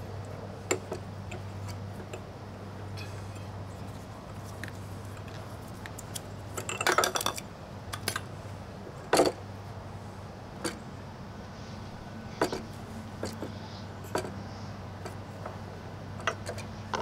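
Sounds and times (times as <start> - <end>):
metal parts clinking on brick: 6.6 - 8.2, 13.2 - 14.3.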